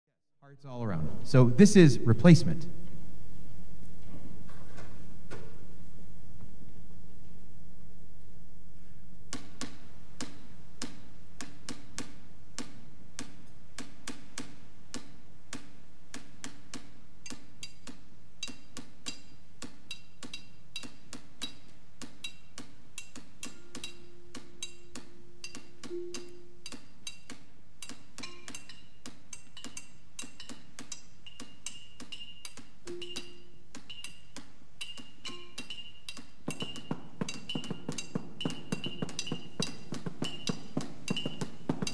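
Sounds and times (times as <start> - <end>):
sharp clicking strikes: 9.3 - 41.9.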